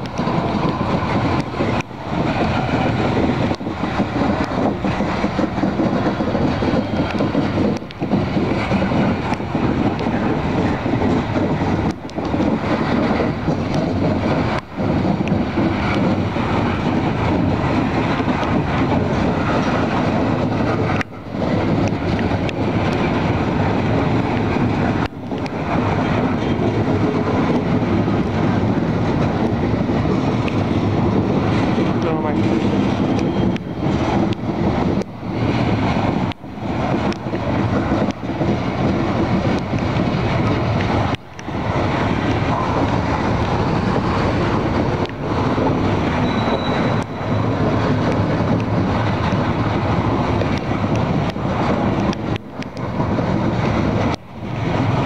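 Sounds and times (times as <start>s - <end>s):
freight train rumbling and rattling: 0.0s - 55.0s.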